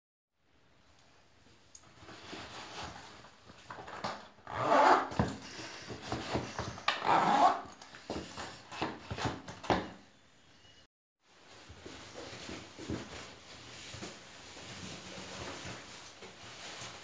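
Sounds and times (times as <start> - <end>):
boots and clothing rustling: 11.3 - 17.0.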